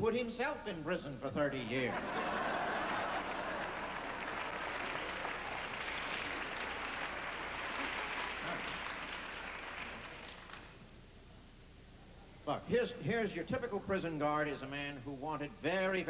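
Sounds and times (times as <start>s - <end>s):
audience laughing: 1.8s - 5.6s
audience applauding: 2.0s - 10.8s.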